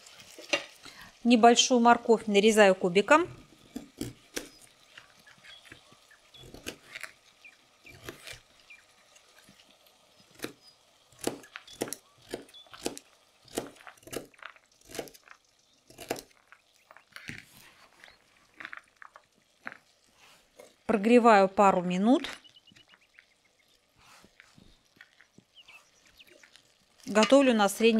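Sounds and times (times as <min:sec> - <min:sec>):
knife chopping carrot on board: 0:11.2 - 0:14.3.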